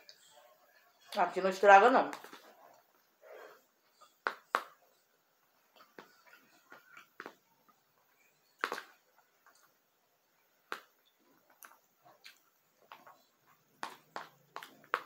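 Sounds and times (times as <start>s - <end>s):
chewing mouth sounds: 11.4s - 13.3s.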